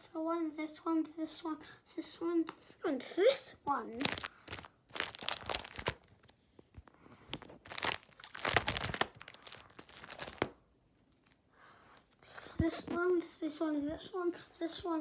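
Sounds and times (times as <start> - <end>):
plastic sleeve pages crinkling: 4.0 - 6.4, 7.3 - 11.4.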